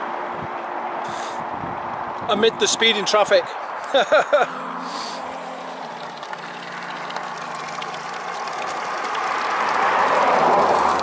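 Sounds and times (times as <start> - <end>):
cars passing: 0.0 - 11.0
vehicle engine running: 4.5 - 11.0.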